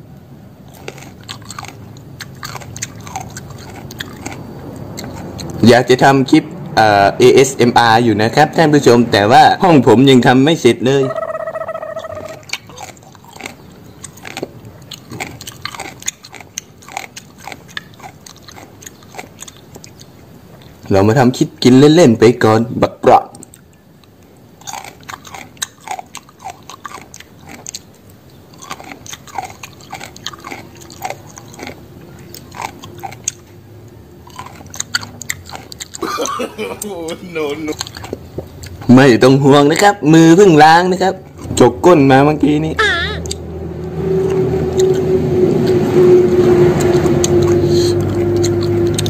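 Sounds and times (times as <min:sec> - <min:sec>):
person chewing crunchy food: 0:00.6 - 0:05.6, 0:11.2 - 0:20.9, 0:23.4 - 0:39.0, 0:44.2 - 0:45.8, 0:46.6 - 0:49.0.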